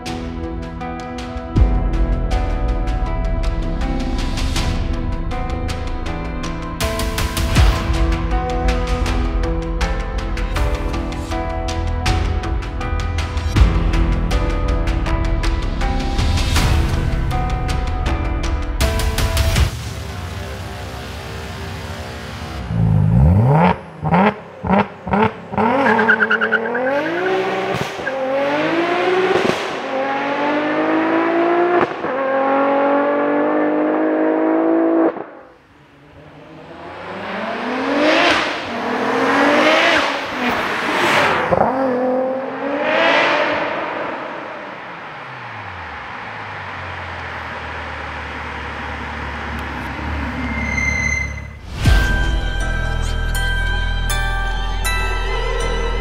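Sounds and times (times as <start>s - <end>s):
car engine revving: 18.8s - 51.9s.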